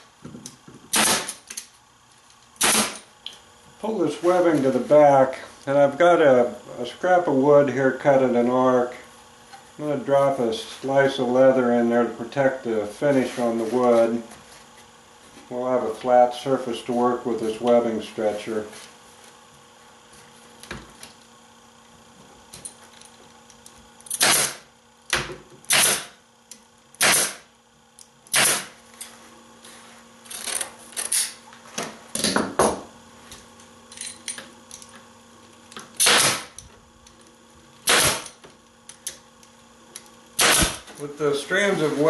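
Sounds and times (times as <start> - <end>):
pneumatic stapler shots: 0.9 - 1.5, 2.6 - 3.1, 24.1 - 24.7, 25.6 - 26.2, 27.0 - 27.5, 28.3 - 28.8, 35.9 - 36.6, 37.8 - 38.4, 40.4 - 40.9.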